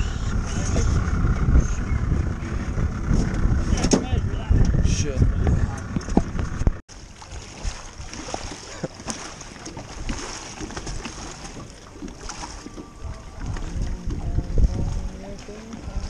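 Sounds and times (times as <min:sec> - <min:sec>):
wind on microphone: 0:00.0 - 0:06.8, 0:12.3 - 0:16.0
small waves lapping on rocks: 0:06.9 - 0:16.0.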